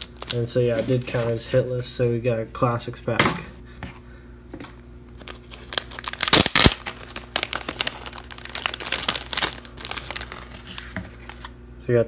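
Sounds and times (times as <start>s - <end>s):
plastic bag crinkling: 0.0s - 1.5s, 5.2s - 11.6s.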